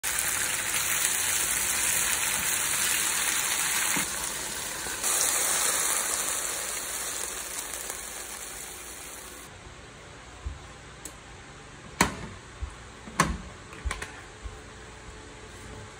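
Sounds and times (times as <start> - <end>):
chicken sizzling in hot oil: 0.0 - 9.5.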